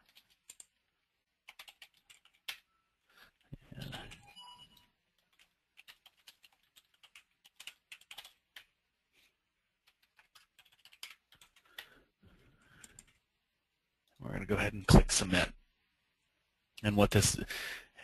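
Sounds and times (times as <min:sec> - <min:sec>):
typing on computer keyboard: 0:00.0 - 0:00.8, 0:01.4 - 0:02.7, 0:03.3 - 0:08.8, 0:09.8 - 0:12.0, 0:12.7 - 0:13.2.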